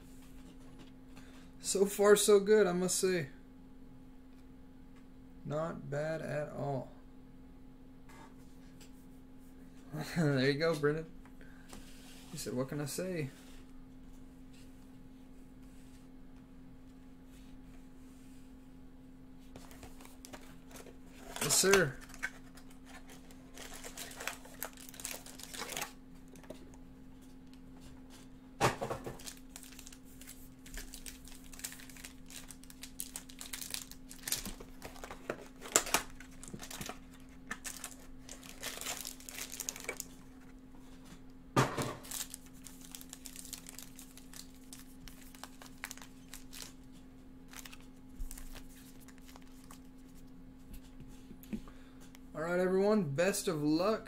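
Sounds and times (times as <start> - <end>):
faint steady hum: 0.0 - 54.0
foil packs crinkling and tearing: 19.6 - 26.6, 29.1 - 40.4, 42.0 - 46.9, 47.5 - 50.1.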